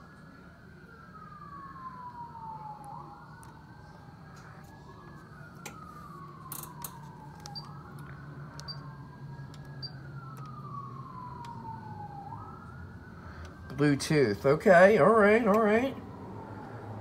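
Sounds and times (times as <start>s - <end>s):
low steady hum: 0.0s - 17.0s
wailing siren: 0.0s - 17.0s.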